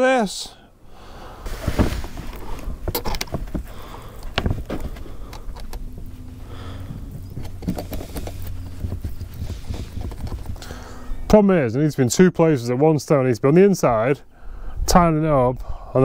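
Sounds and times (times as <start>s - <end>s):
low steady rumble: 0.8s - 12.1s
sharp knocks and thuds: 1.5s - 5.0s.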